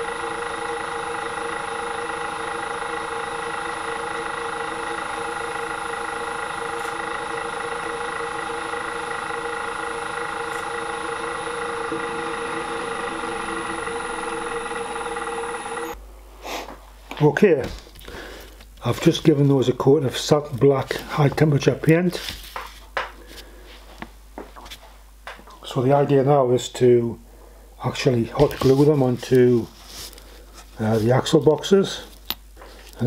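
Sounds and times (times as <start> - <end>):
bench drill motor running: 0.0 - 16.0
drill bit drilling cast iron: 0.0 - 16.0.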